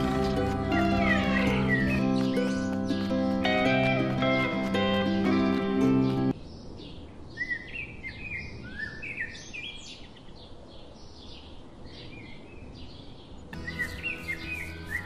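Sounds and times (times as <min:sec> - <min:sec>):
music track: 0:00.0 - 0:06.3, 0:13.6 - 0:15.0
birds chirping: 0:00.0 - 0:15.0.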